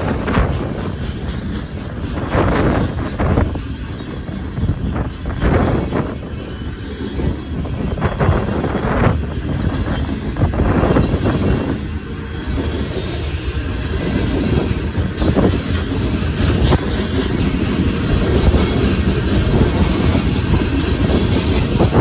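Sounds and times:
freight train wheels rumbling: 0.0 - 22.0
wheels clicking over rail joints: 0.0 - 22.0.

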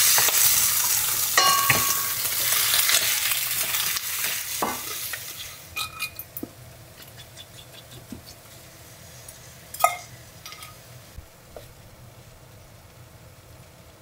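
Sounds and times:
food frying in pan: 0.0 - 14.0
metallic clank with ring: 1.4 - 2.2.

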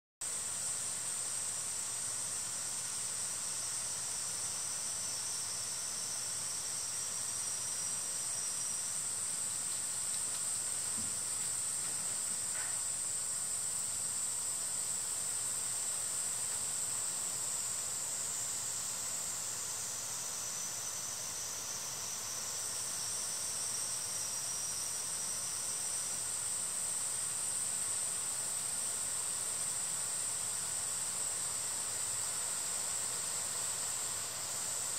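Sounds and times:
faint insect buzzing: 0.3 - 34.9
high-pitched insect chorus: 0.3 - 34.9.

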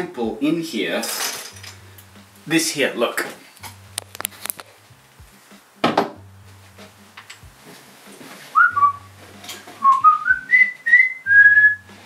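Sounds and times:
person whistling a tune: 8.5 - 12.0.

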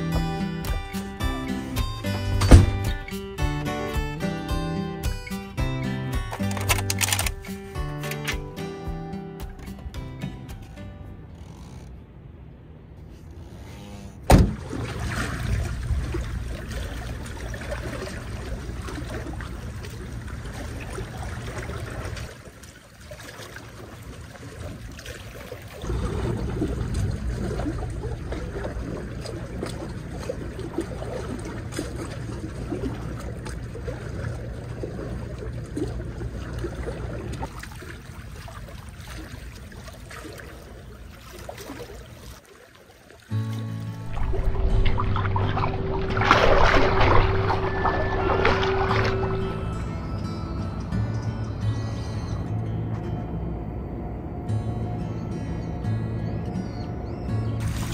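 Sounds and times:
water sloshing against concrete: 13.2 - 49.8, 57.6 - 57.9
low rumble: 25.8 - 37.5, 44.0 - 57.9.

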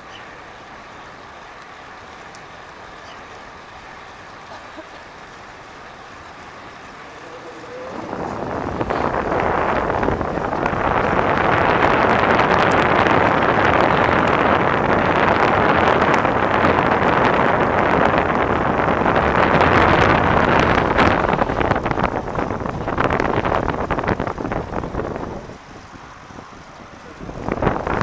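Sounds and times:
wind rushing over microphone: 6.7 - 28.0.

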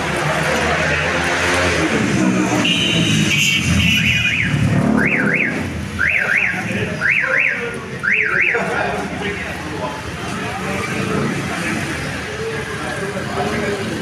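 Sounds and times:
low street rumble: 0.0 - 14.0
vehicle alarm beeping and warbling: 2.5 - 8.8.

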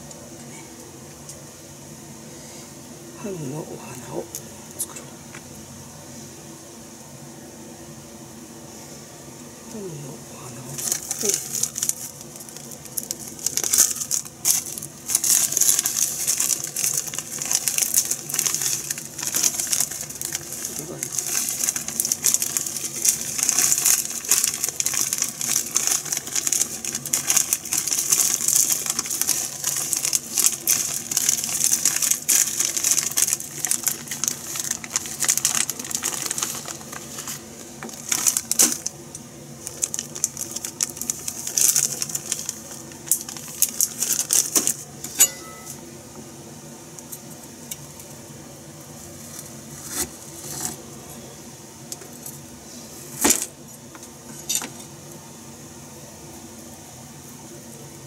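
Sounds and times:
steady low hum: 0.0 - 58.0
crackly rustling and clicking: 10.8 - 44.8.

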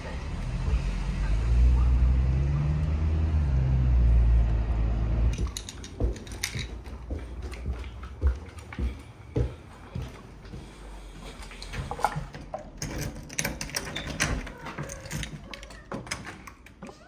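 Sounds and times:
car engine pulling away: 0.0 - 6.5
sharp clicks and knocks: 5.3 - 7.7.

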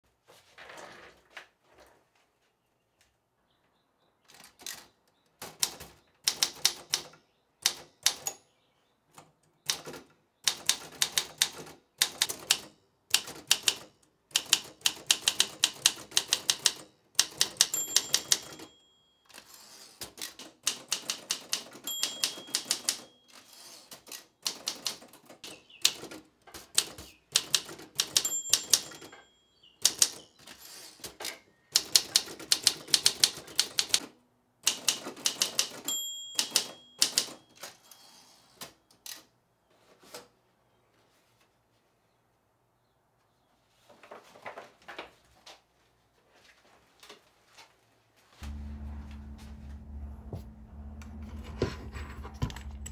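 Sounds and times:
typewriter keystrokes clacking: 4.3 - 8.4, 9.6 - 18.7, 20.0 - 23.2, 23.9 - 29.1, 29.8 - 30.2, 31.0 - 37.8
typewriter bell ring: 16.5 - 20.0, 20.9 - 24.0, 27.9 - 30.7, 35.4 - 38.5, 52.3 - 52.9.

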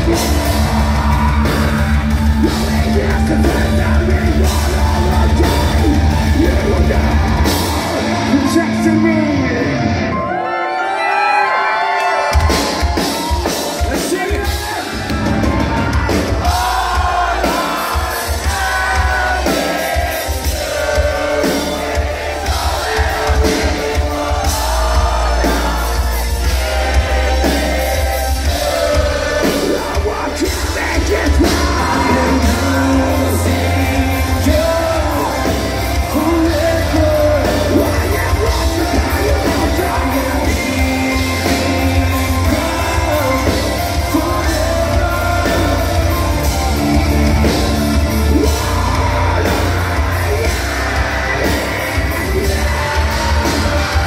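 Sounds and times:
person singing: 0.0 - 11.5, 15.6 - 54.0
metal band playing live: 0.0 - 54.0.

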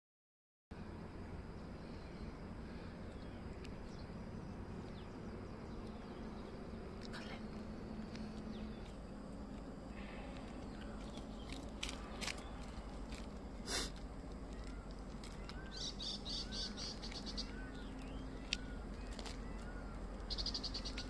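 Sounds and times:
outdoor background noise: 0.7 - 21.0
sharp animal chirps: 13.6 - 21.0.

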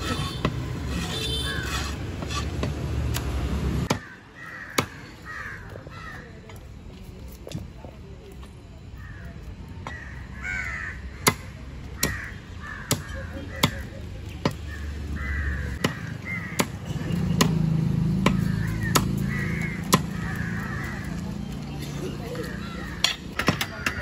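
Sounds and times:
crows cawing: 3.9 - 6.3, 9.0 - 13.9, 14.7 - 16.8, 18.3 - 21.3, 22.4 - 24.0.

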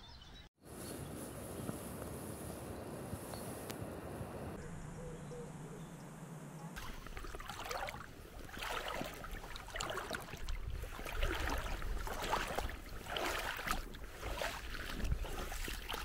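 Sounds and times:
wind rumble on microphone: 0.8 - 4.8, 10.2 - 16.0
river water lapping and splashing: 6.8 - 16.0.

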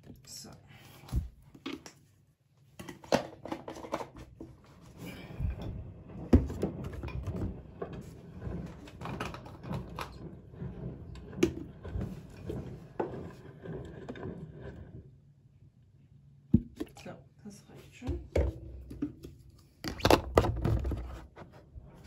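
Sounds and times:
plastic bottles knocking: 16.6 - 17.0.

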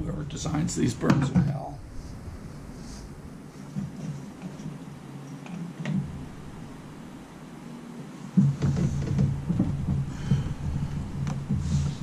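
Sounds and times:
hands rustling and knocking on wiring: 3.4 - 6.8, 8.3 - 12.0.

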